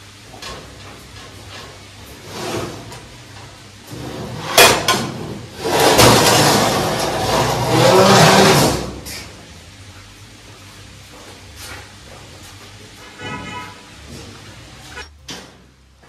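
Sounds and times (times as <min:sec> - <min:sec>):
metal scraping and rattling: 0:03.9 - 0:09.3.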